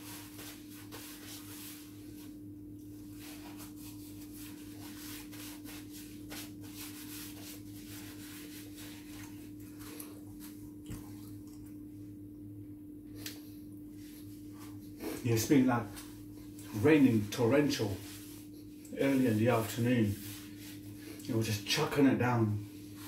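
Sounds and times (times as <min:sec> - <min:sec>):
low electrical hum: 0:00.0 - 0:23.0
paper napkin rustling: 0:03.0 - 0:10.6, 0:14.0 - 0:21.7.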